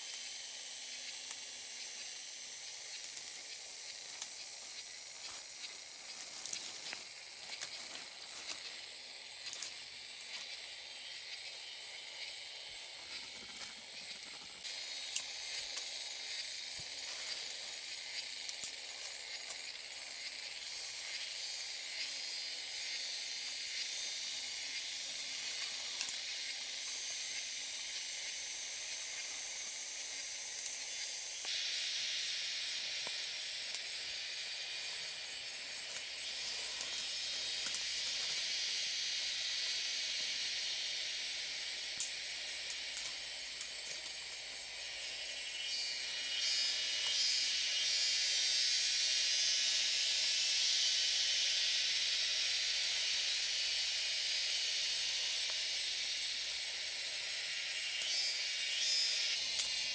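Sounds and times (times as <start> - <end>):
forest background hiss: 0.0 - 59.9
dry sticks and leaves crackling: 2.7 - 10.6, 13.0 - 19.8, 25.4 - 27.0, 34.8 - 38.9, 41.9 - 45.3.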